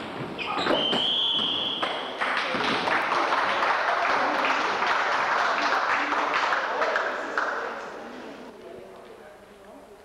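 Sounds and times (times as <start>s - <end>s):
referee's whistle blast: 0.4s - 2.0s
spectators clapping: 1.8s - 7.9s.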